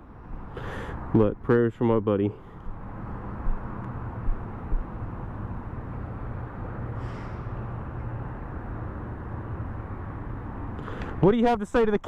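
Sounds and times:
road traffic rumble: 0.0s - 12.0s
low bumps: 2.6s - 5.3s.

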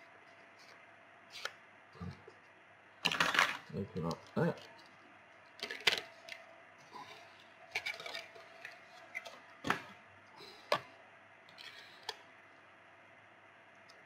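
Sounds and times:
plastic clicks and crackles: 5.5s - 6.4s.

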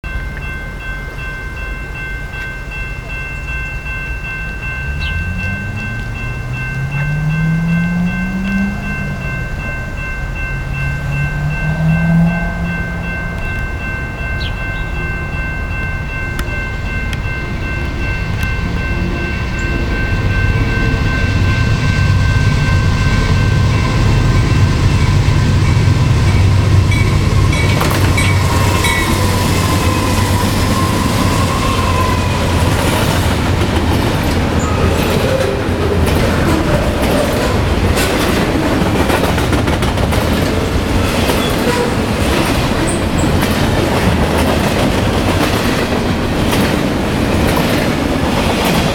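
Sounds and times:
diesel locomotive engine rumble: 0.0s - 48.9s
freight cars clattering: 26.4s - 48.9s
wheels clicking over rail joints: 26.8s - 48.9s.

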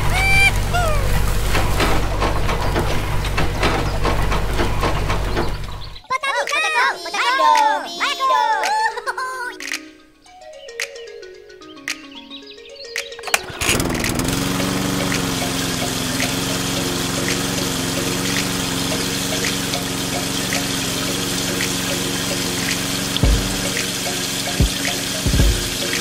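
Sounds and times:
water splashing: 0.0s - 5.8s, 13.2s - 26.0s
small water pump whining: 0.0s - 6.0s, 13.2s - 26.0s
low thumps: 23.2s - 23.9s.

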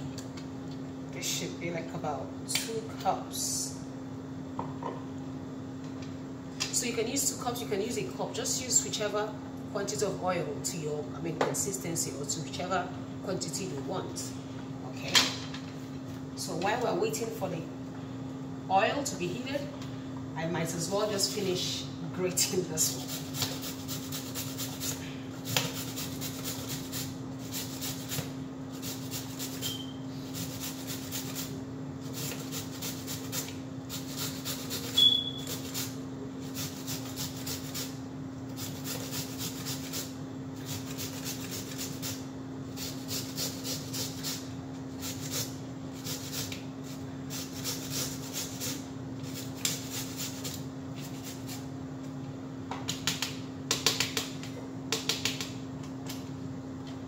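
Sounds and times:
carrot rasping on metal grater: 25.5s - 28.2s, 28.8s - 37.9s, 38.6s - 42.2s, 42.8s - 44.4s, 45.0s - 46.6s, 47.3s - 51.6s
high squeak: 29.6s - 30.0s, 34.9s - 35.6s.

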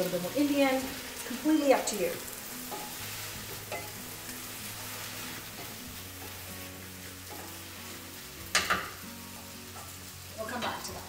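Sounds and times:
wooden spatula stirring: 0.0s - 8.2s
vegetables sizzling in skillet: 0.0s - 11.0s.

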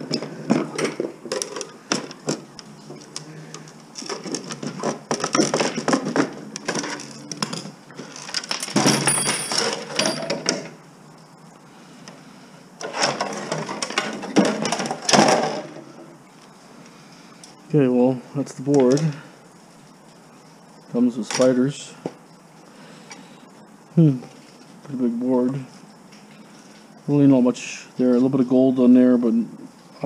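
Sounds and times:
metal parts and screws clinking: 4.0s - 10.7s.

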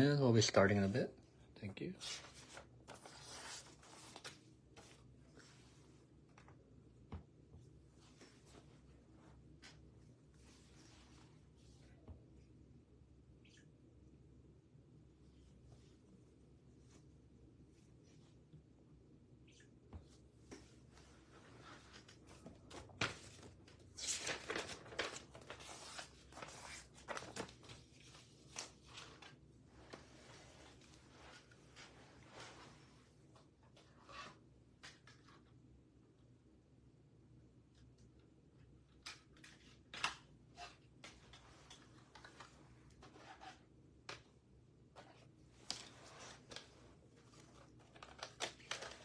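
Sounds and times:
wrapping rustling and crinkling: 21.2s - 33.0s, 45.0s - 49.0s.

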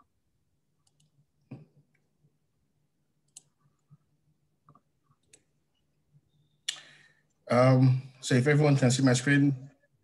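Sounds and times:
faint clicks: 0.8s - 2.1s, 3.2s - 4.0s.

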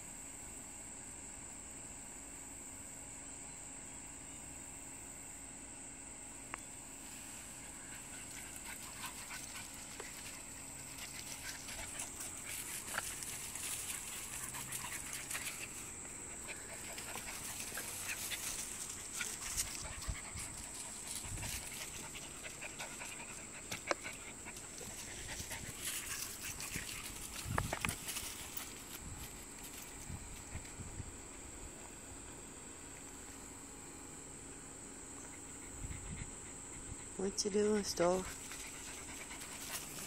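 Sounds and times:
dogs scuffling in dry leaves: 7.1s - 22.5s, 24.4s - 30.4s
dogs breathing and vocalizing: 7.7s - 29.0s, 38.3s - 40.0s.

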